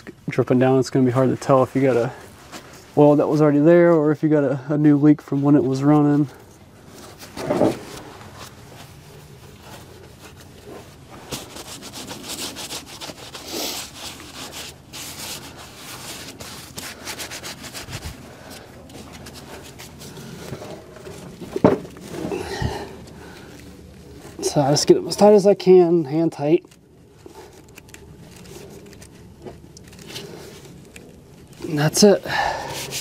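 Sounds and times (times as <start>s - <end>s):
gloved hands twisting oil filter: 8.0s - 33.0s.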